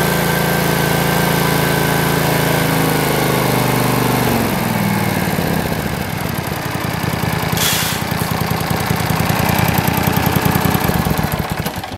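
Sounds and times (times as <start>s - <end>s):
engine idling: 0.0s - 11.9s
brief hiss: 7.6s - 8.4s.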